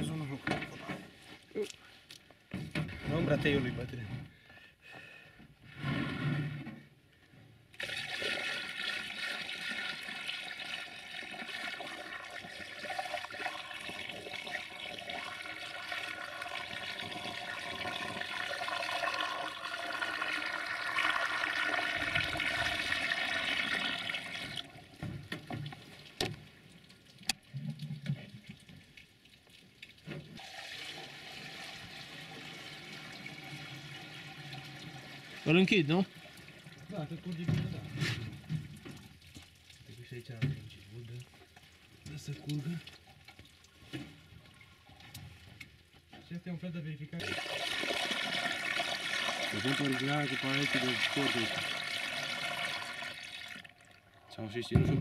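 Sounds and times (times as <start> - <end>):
water gushing into a funnel: 7.8 - 26.1, 29.9 - 45.7, 47.2 - 55.0.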